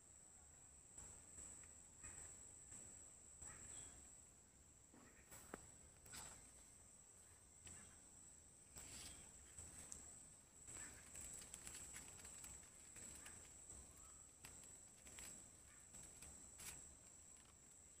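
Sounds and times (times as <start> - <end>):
soft clicks and rustles: 8.8 - 18.0.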